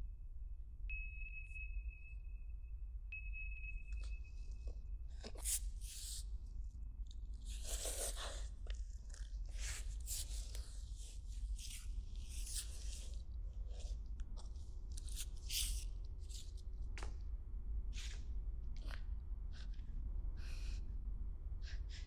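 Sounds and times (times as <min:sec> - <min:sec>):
low steady hum: 0:00.0 - 0:22.0
irregular crunching and crackling: 0:07.0 - 0:10.7.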